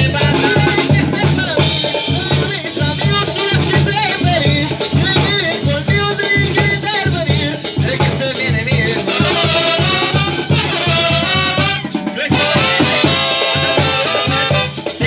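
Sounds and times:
brass band playing live: 0.0 - 15.0.

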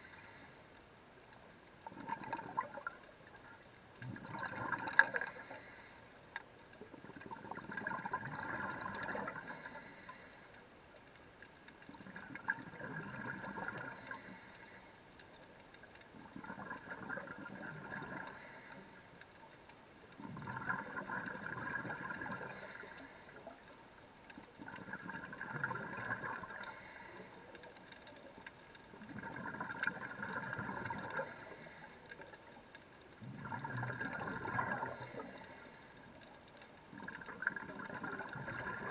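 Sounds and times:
scuba regulator bubbles gurgling: 1.2 - 38.9.

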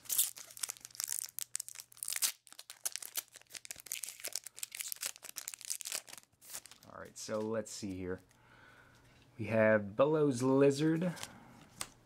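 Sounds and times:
plastic wrapper crinkling and tearing: 0.0 - 7.2.

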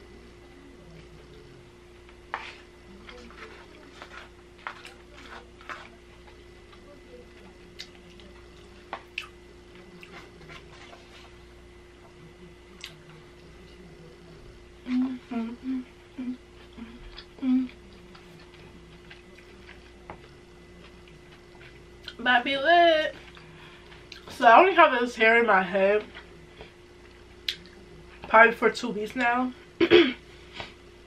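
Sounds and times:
wet chewing: 7.4 - 11.0, 16.6 - 22.2
closed-mouth hums: 11.7 - 22.2.

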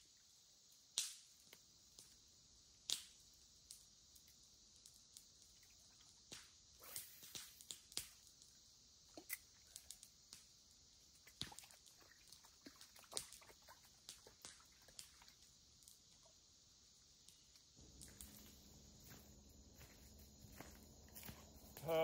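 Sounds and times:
insects chirring: 0.0 - 22.0
small clicks and ticks: 2.9 - 16.5.

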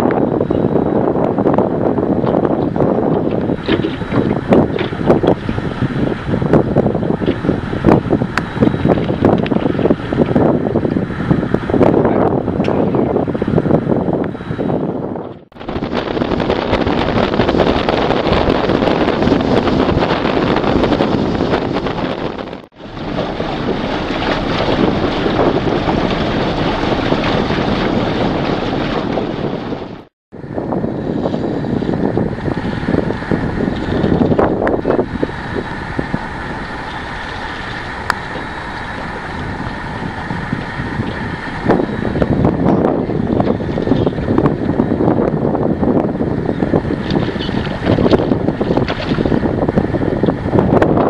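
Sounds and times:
wind buffeting microphone: 0.0 - 51.0
mechanical hum: 30.4 - 51.0.

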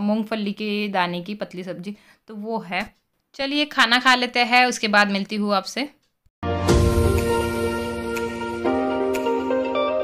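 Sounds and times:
soft instrumental music: 6.4 - 10.0.

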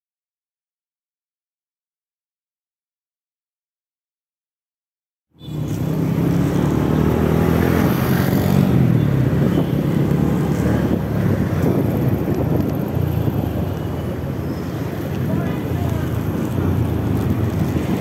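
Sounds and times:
road and traffic noise: 5.3 - 18.0.

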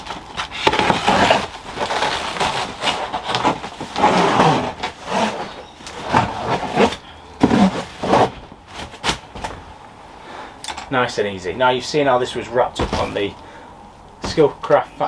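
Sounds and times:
plastic wrap rustling: 0.0 - 9.6.

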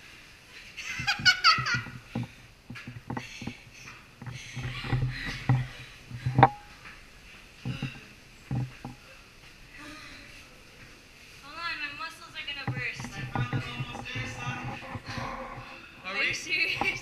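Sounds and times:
woman laughing: 0.8 - 1.9
footsteps on stone stairs: 1.0 - 9.7, 12.5 - 17.0.

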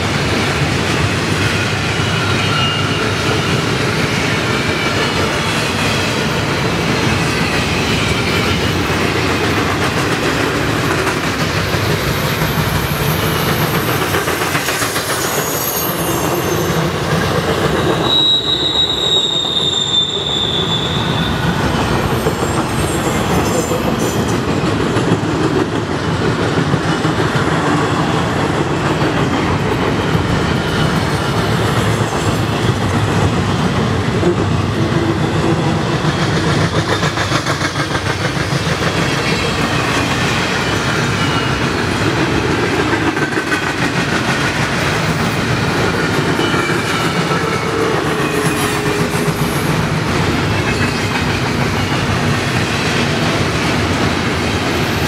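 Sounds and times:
train wheels rumbling on rail: 0.0 - 55.0
high wheel squeal: 1.4 - 9.3, 11.9 - 24.5, 39.1 - 42.0.

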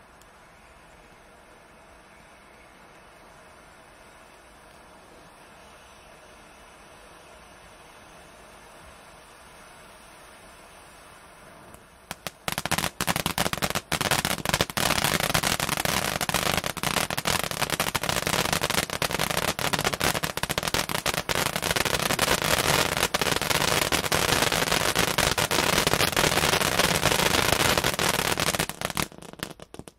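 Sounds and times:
firework fountain hissing: 0.0 - 29.9
firework crackling pops: 11.3 - 29.9.

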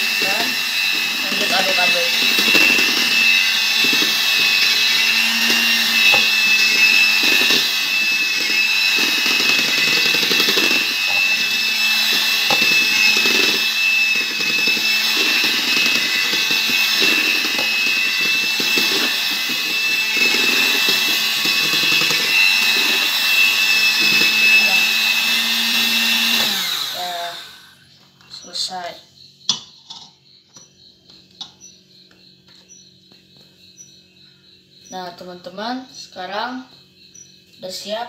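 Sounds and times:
beaters scraping and knocking bowl: 0.0 - 27.0
electric hand mixer whining: 0.0 - 27.9.

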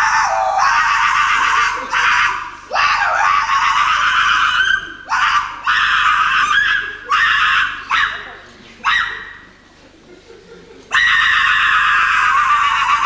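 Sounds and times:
woman shrieking: 0.0 - 8.2.

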